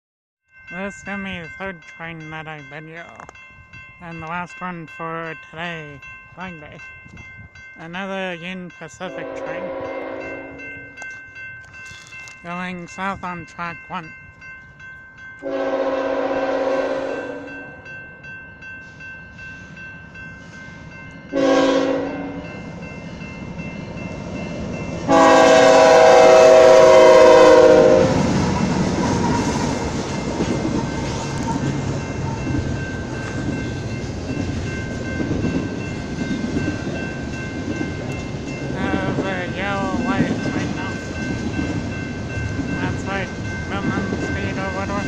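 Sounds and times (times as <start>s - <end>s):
crossing bells ringing: 0.5s - 45.0s
train rumbling past: 0.6s - 45.0s
locomotive air horn: 9.2s - 10.6s, 15.4s - 17.5s, 21.3s - 22.4s, 25.1s - 28.3s.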